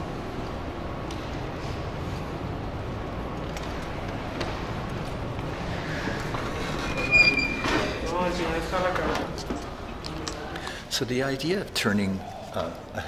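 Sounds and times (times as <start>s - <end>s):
glass door squeak: 6.8s - 8.0s.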